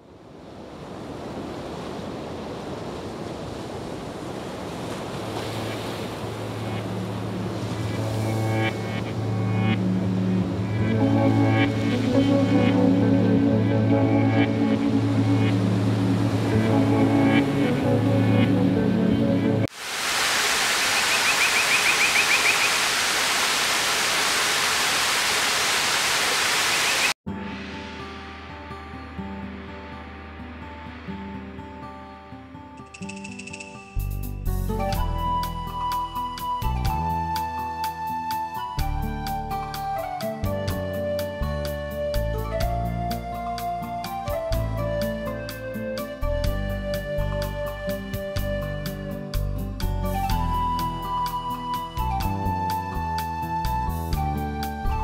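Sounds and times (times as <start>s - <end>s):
rushing water: 0.0s - 32.8s
water spraying onto leaves: 19.7s - 27.2s
high chirps: 20.8s - 23.2s, 26.5s - 27.2s, 32.8s - 34.4s.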